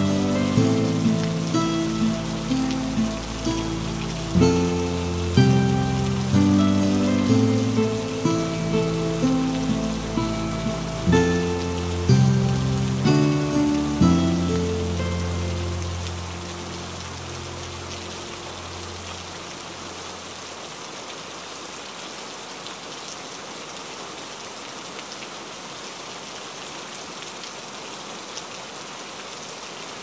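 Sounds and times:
background music: 0:00.0 - 0:19.1.

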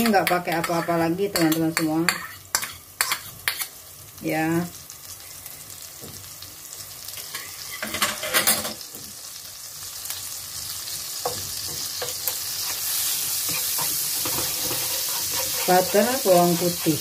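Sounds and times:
garlic sizzling in butter: 0:00.0 - 0:17.0
chopsticks scraping in pan: 0:12.2 - 0:17.0.

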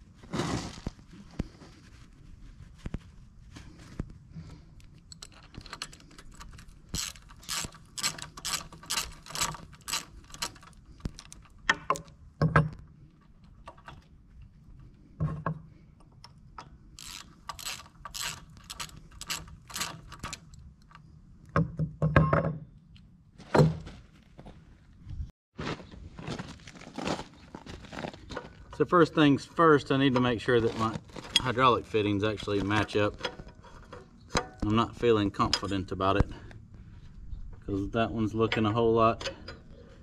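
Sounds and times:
ratchet wrench clicking: 0:05.1 - 0:11.5, 0:17.0 - 0:20.5.

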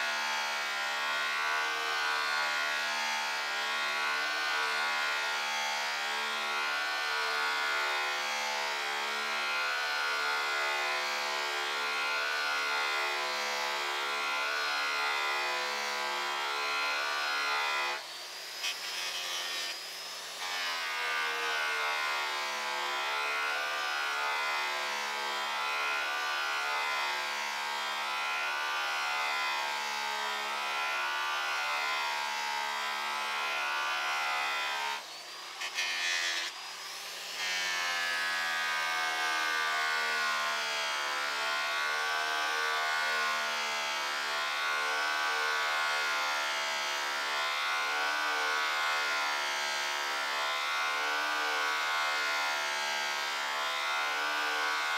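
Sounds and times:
rotary polisher motor whine: 0:00.0 - 0:54.9.

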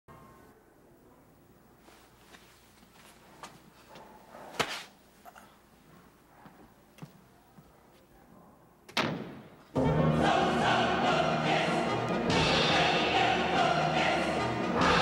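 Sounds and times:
loud choral music: 0:09.7 - 0:15.0.

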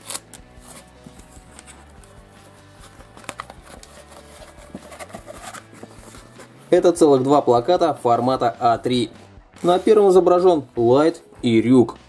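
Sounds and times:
quiet background music: 0:00.0 - 0:12.0
paper poster crackling: 0:02.8 - 0:06.5.

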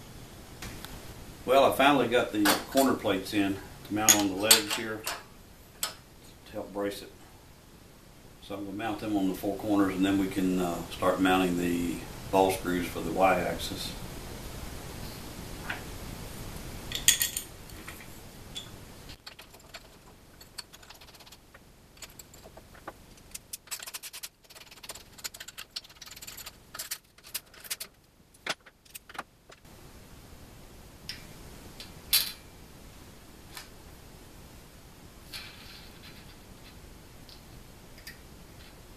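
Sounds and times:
metal hardware clinking: 0:04.1 - 0:06.0, 0:18.6 - 0:29.6, 0:32.1 - 0:32.5.

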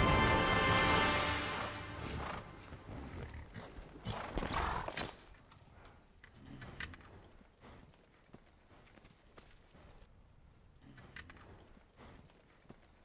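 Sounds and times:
background music: 0:00.0 - 0:03.0
horses stamping hooves: 0:01.6 - 0:10.2, 0:10.8 - 0:13.0.

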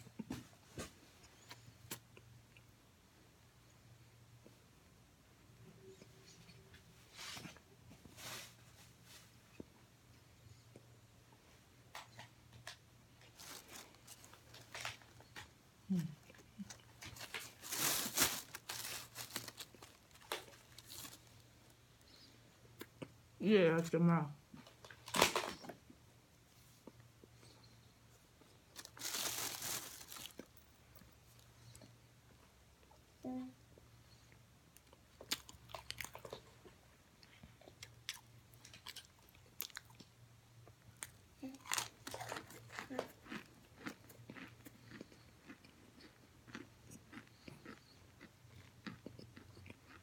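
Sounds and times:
crunchy food being chewed: 0:11.9 - 0:23.2, 0:26.8 - 0:32.5, 0:34.3 - 0:50.0
plastic bag crinkling: 0:17.0 - 0:21.4, 0:28.7 - 0:30.6.

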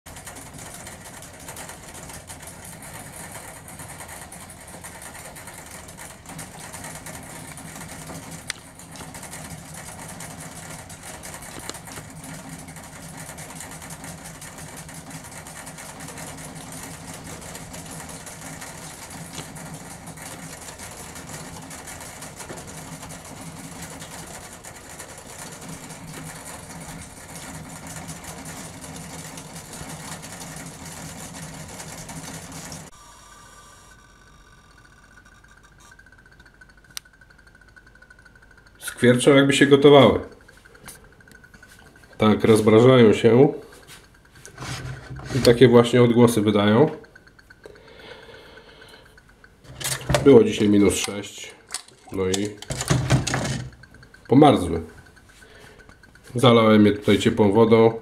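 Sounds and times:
steady low hum: 0:00.1 - 0:58.0
drinker valve clicking: 0:33.2 - 0:42.8, 0:43.6 - 0:57.4.

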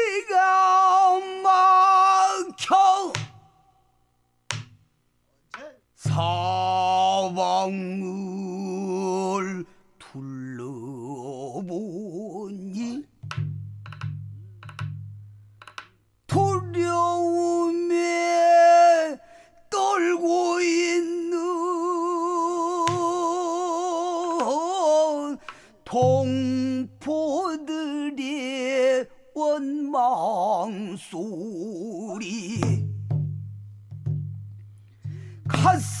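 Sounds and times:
man singing with wide vibrato: 0:00.0 - 0:03.9, 0:06.0 - 0:13.2, 0:16.3 - 0:33.1, 0:35.1 - 0:36.0
low accompanying beat: 0:32.6 - 0:36.0.

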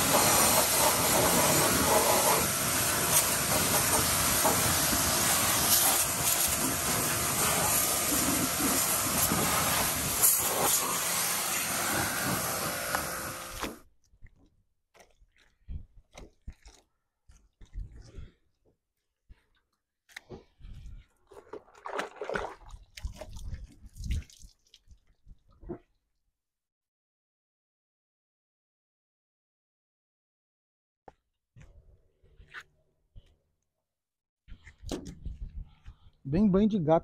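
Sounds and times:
pressure washer spraying water: 0:00.0 - 0:13.8.

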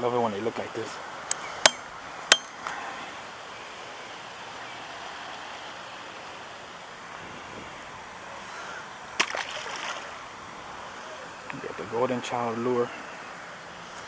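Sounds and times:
outdoor background hiss: 0:00.0 - 0:14.0
sharp clicks with metallic ring: 0:01.3 - 0:02.6.

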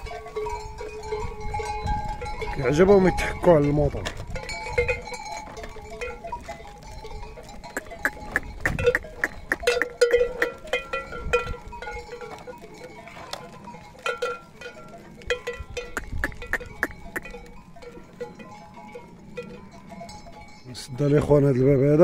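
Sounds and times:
goat bells clanking and ringing: 0:00.0 - 0:22.0.

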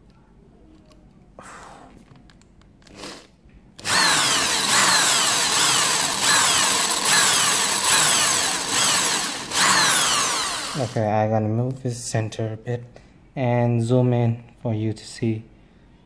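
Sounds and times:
electric drill whining: 0:02.9 - 0:11.0.

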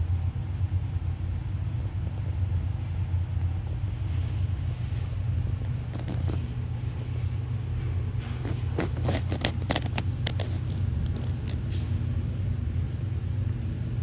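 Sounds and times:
steady low hum: 0:00.0 - 0:14.0
small clicks and taps: 0:08.4 - 0:11.9.

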